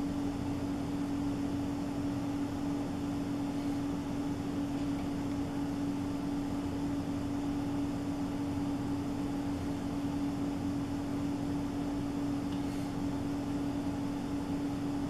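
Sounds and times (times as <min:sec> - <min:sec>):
steady mechanical hum: 0:00.0 - 0:15.0.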